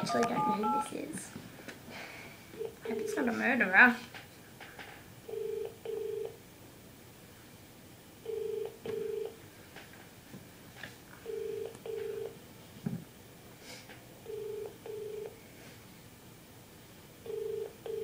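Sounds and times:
telephone ringback tone: 0:00.0 - 0:01.0, 0:02.6 - 0:03.3, 0:05.3 - 0:06.4, 0:08.2 - 0:09.4, 0:11.3 - 0:12.4, 0:14.3 - 0:15.4, 0:17.2 - 0:18.0.

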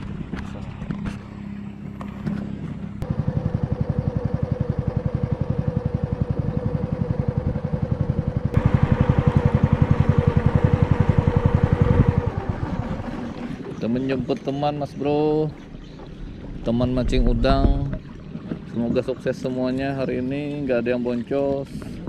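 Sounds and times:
boat engine throbbing: 0:00.0 - 0:22.0.

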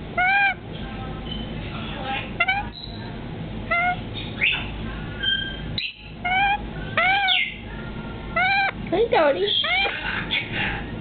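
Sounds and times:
parrot whistles and squeaks: 0:03.7 - 0:07.6.

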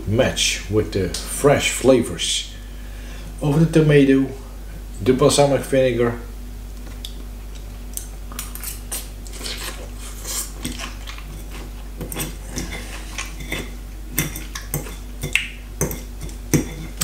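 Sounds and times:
chewing: 0:06.9 - 0:13.8
fork scraping ceramic bowl: 0:08.6 - 0:15.1, 0:15.8 - 0:17.0.

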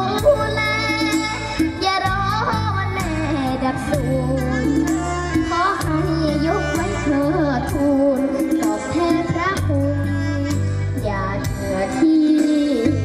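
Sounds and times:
backing track with bass and drums: 0:00.0 - 0:13.0
girl singing into a microphone: 0:00.0 - 0:13.0.

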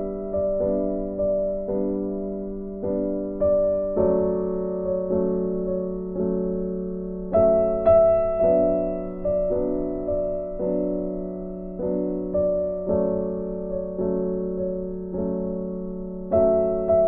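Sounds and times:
gentle piano piece: 0:00.0 - 0:17.0.

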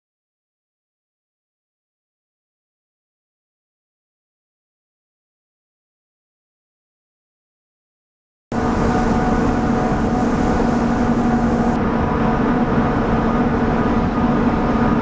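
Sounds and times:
ship machinery humming: 0:08.5 - 0:12.0.

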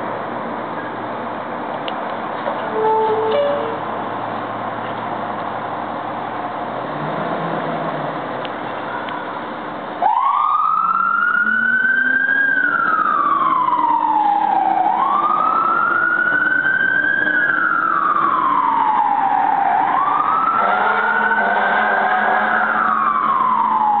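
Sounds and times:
fire truck siren wailing: 0:10.0 - 0:24.0.

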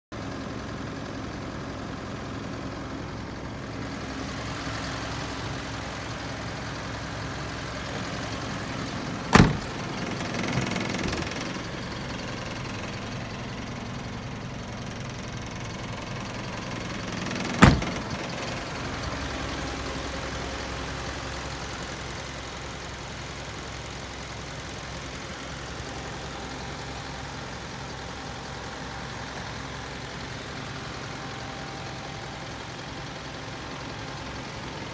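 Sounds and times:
diesel engine idling: 0:00.1 - 0:34.9
sharp thuds: 0:09.3 - 0:09.8, 0:17.6 - 0:18.1.

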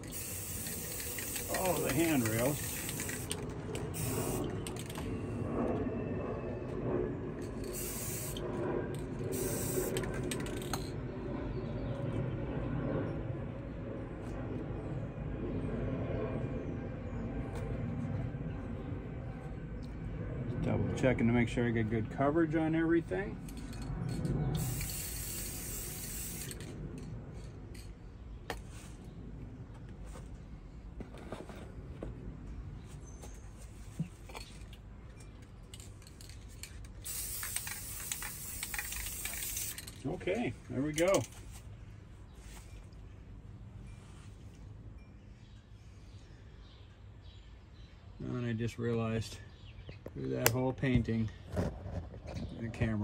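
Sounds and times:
spray can hissing: 0:00.0 - 0:04.5, 0:07.7 - 0:08.4, 0:09.3 - 0:10.0, 0:24.6 - 0:26.6, 0:37.1 - 0:39.8.

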